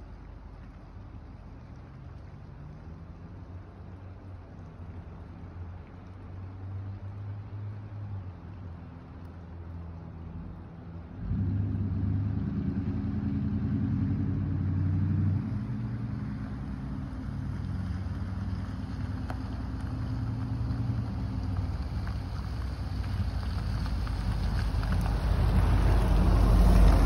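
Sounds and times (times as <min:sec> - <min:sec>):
deep truck exhaust note: 0:11.2 - 0:16.2.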